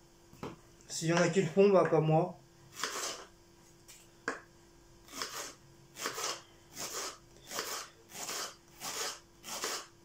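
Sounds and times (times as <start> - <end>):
knife slicing onion on board: 2.7 - 3.3, 5.1 - 9.9.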